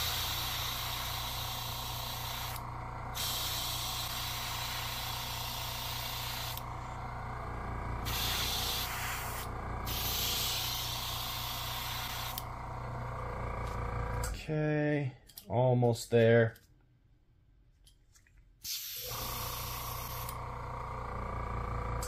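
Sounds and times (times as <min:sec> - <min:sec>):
airbrush spraying hiss: 0:00.0 - 0:02.6, 0:03.2 - 0:06.6, 0:08.0 - 0:12.4
steady low hum: 0:00.0 - 0:17.7.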